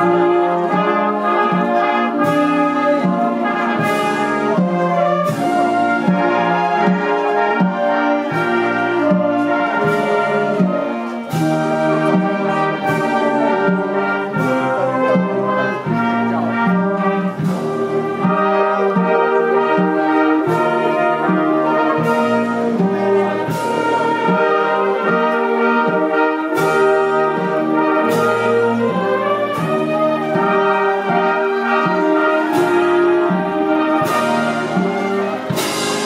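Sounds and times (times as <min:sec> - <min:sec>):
brass band playing march: 0:00.0 - 0:36.0
cymbal crashes: 0:35.5 - 0:36.0.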